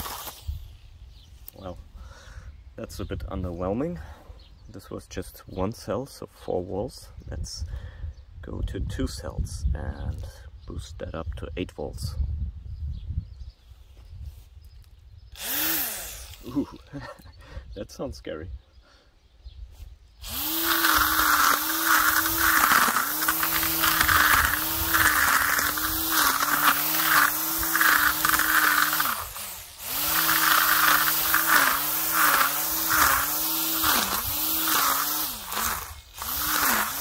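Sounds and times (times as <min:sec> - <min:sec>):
ties rasping against grass: 0:00.0 - 0:00.7, 0:19.7 - 0:37.0
weed whacker motor whine: 0:00.0 - 0:01.2, 0:15.3 - 0:17.2, 0:20.2 - 0:37.0.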